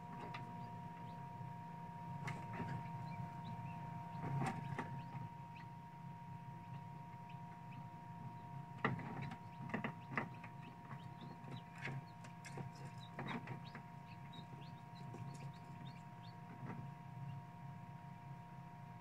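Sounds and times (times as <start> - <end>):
incubator fan and motor humming: 0.0 - 19.0.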